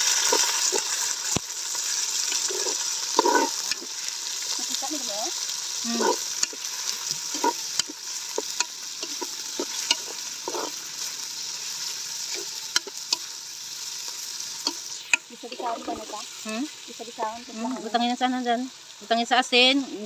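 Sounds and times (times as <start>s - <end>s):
meat sizzling in a wok: 0.0s - 20.0s
ladle scraping a pan: 2.2s - 4.0s, 5.8s - 10.8s.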